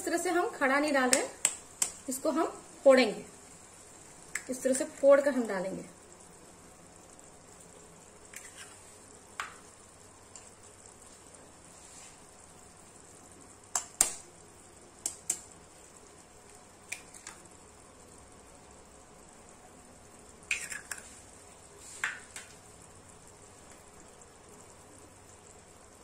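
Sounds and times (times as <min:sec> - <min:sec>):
gravy sizzling in frying pan: 0:00.0 - 0:26.0
knife cracking eggshells: 0:20.5 - 0:21.0.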